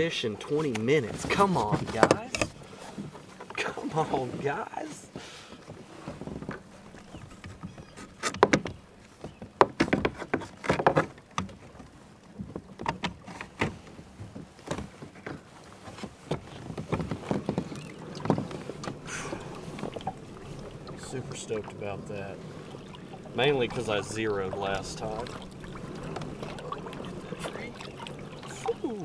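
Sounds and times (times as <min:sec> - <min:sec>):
gear knocking against kayak hull: 0:05.6 - 0:28.8.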